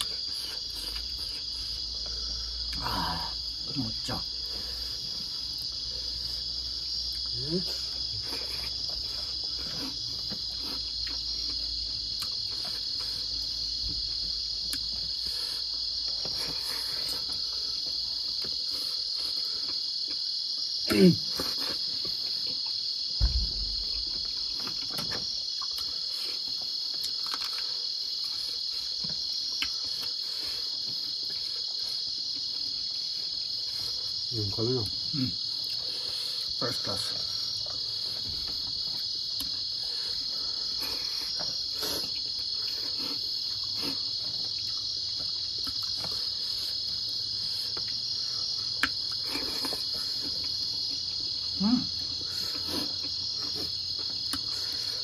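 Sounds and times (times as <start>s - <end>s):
crickets chirping: 0.0s - 55.0s
low thump: 23.2s - 24.4s
eating clicks and smacks: 24.6s - 26.1s, 26.9s - 30.2s, 43.6s - 46.4s, 48.6s - 50.6s, 52.8s - 54.9s.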